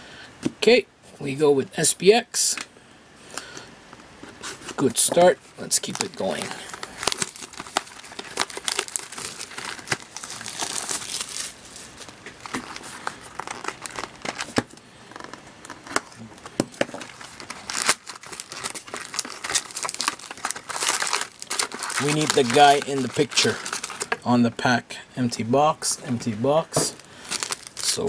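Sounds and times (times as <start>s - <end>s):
plastic shrink wrap crackling: 5.6s - 24.2s, 26.9s - 28.0s.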